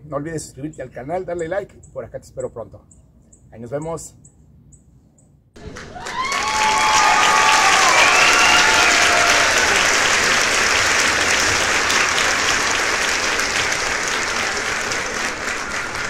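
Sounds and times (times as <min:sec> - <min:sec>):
crowd applauding: 0:05.6 - 0:16.0.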